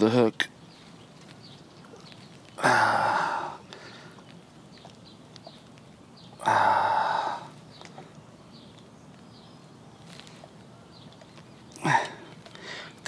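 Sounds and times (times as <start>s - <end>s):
man sighing heavily: 2.6s - 4.2s, 6.4s - 7.6s, 11.8s - 13.0s.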